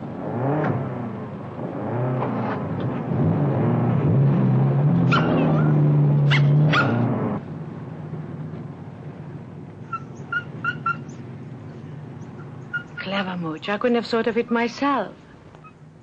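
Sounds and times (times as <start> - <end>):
dog whimpering yelps: 5.1 - 7.0, 9.9 - 11.2, 12.2 - 13.2.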